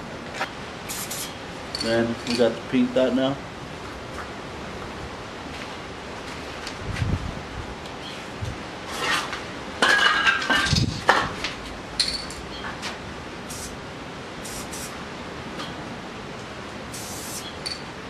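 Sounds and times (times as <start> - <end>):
spray can hissing: 0.9 - 1.8, 13.5 - 13.7, 14.4 - 15.0, 16.9 - 17.6
spray can clinks and clicks: 0.9 - 2.4, 12.0 - 12.4, 17.0 - 17.9.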